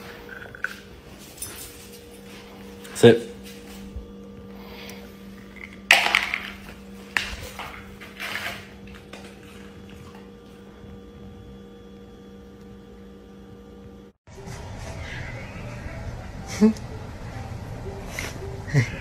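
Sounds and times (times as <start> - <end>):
faint steady hum: 0.0 - 14.2.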